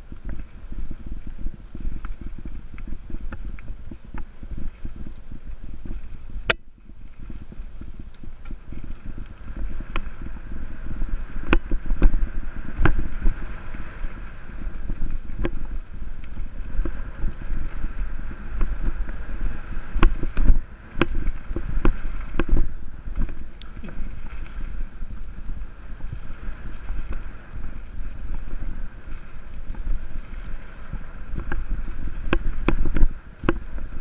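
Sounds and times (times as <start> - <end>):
tyres rumbling on dirt trail: 0.0 - 34.0
bike clicking and rattling: 1.8 - 13.2, 14.8 - 24.2.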